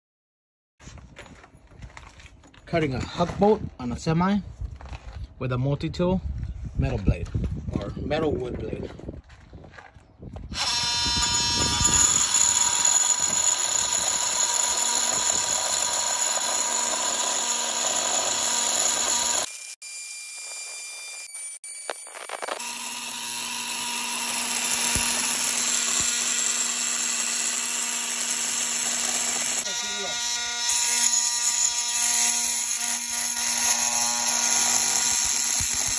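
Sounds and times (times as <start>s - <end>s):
multi-tool buzzing cutting metal: 10.5s - 35.9s.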